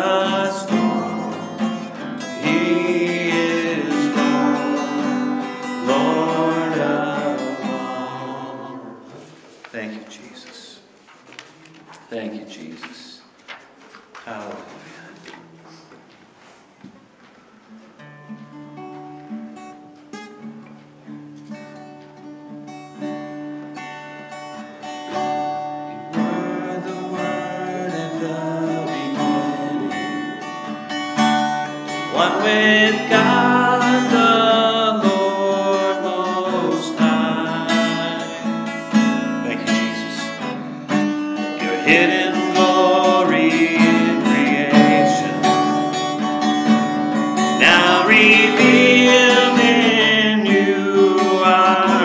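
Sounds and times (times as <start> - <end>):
man and woman singing: 0.0 - 9.4, 26.0 - 30.8, 31.8 - 40.2, 41.5 - 46.0, 47.4 - 52.0
acoustic guitar strumming chords: 0.0 - 9.5, 17.8 - 52.0.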